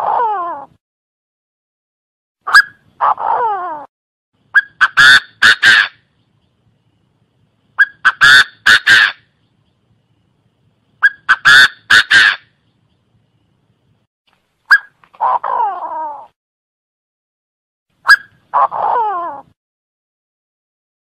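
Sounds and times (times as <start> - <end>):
francolin calling: 4.5 - 13.6.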